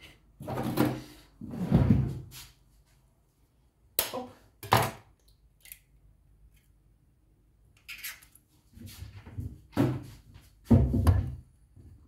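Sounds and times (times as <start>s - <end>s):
drawer opening and shutting: 0.4s - 2.3s.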